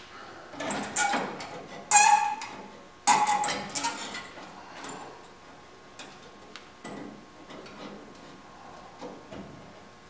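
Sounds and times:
sheet metal clanking: 0.6 - 4.4.

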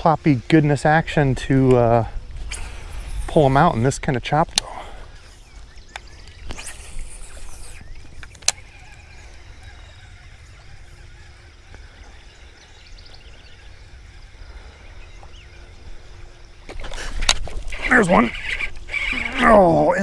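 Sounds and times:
wind rumble on microphone: 0.8 - 20.0
fishing line hissing off spool: 2.4 - 4.0, 6.3 - 12.2, 16.8 - 20.0
reel sharp click: 7.7 - 8.7
fishing reel being cranked: 17.3 - 20.0.

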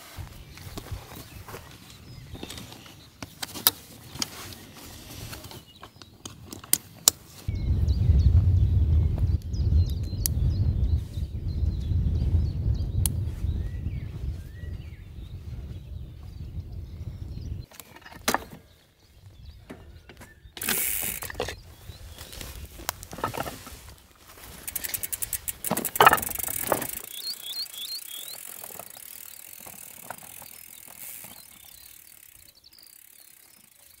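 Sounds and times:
bike knocks and rattles: 0.6 - 7.3, 17.6 - 18.7, 19.4 - 34.0
bicycle freewheel ticking: 20.6 - 21.4, 24.5 - 34.0.

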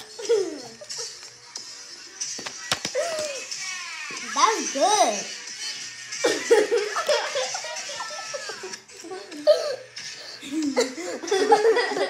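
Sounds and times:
child giggling and laughing: 0.2 - 1.0, 6.2 - 12.0.

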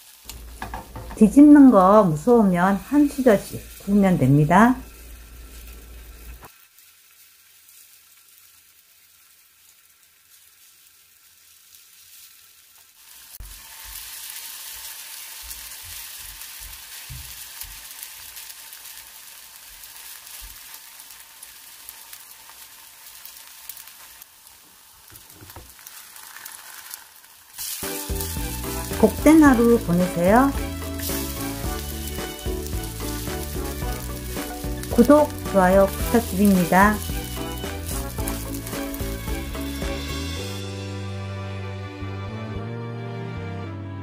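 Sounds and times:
batter sizzling in oil: 0.0 - 41.5
wooden spoon knocking on pan: 0.3 - 1.3, 16.7 - 17.4, 25.2 - 25.7.

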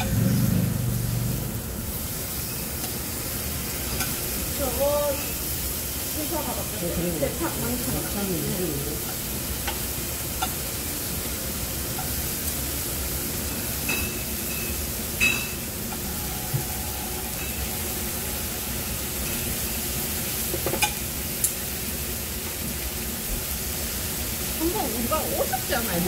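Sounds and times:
meat sizzling on grill: 0.0 - 26.0
metal tongs clinking: 13.9 - 15.6.

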